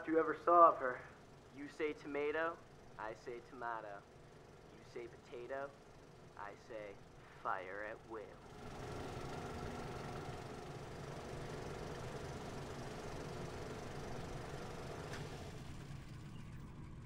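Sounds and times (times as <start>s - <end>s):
film projector whirring: 0.0s - 17.0s
steady hum tones: 0.0s - 17.0s.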